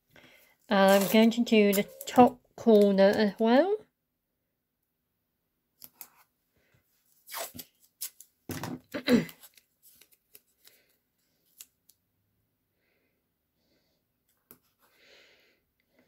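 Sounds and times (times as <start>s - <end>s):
tape pulled off roll and torn: 0.9s - 2.2s, 7.2s - 8.3s.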